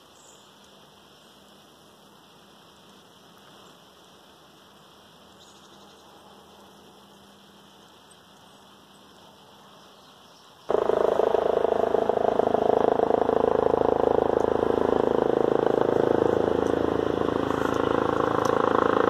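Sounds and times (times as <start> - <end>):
helicopter engine and rotor drone: 10.7 - 19.0.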